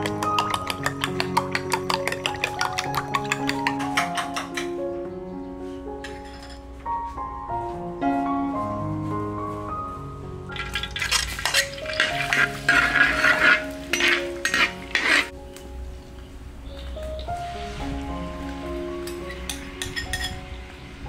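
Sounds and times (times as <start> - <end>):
background music: 0.0 - 21.0
metal spatula scraping a wok: 10.8 - 15.3.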